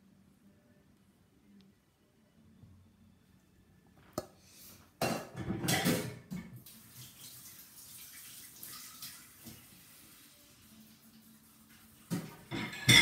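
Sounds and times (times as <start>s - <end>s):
saucepan clattering and scraping: 5.0s - 6.4s, 12.2s - 13.0s.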